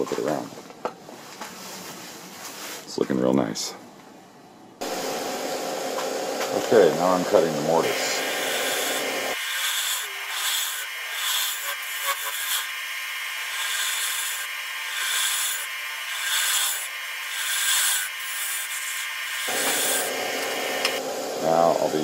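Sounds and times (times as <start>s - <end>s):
lathe tool scraping wood: 4.8s - 21.1s.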